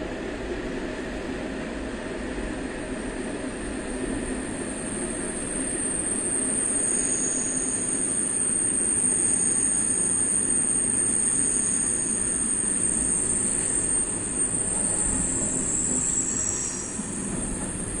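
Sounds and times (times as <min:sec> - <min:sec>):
train running gear rumble: 0:00.6 - 0:18.0
train wheels squealing: 0:03.8 - 0:18.0.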